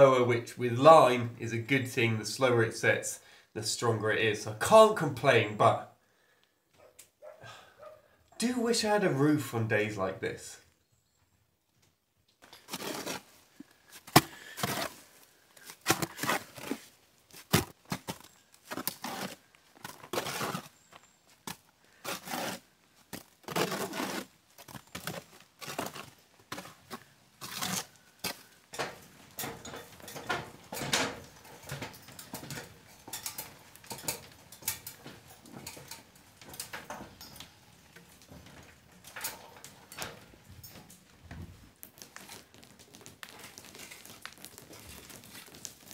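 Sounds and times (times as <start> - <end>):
blade scraping wet mortar: 12.6 - 13.3, 14.0 - 16.9, 17.5 - 20.8, 22.0 - 28.6.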